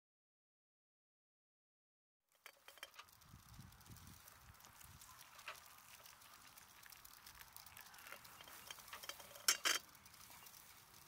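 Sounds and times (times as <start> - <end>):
hot water pouring into cup: 2.3 - 11.0.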